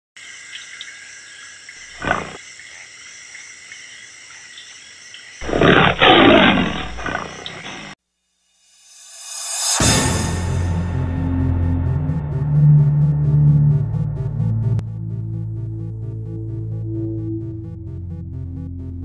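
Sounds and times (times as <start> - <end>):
lion roaring: 1.9 - 2.4, 5.4 - 8.0.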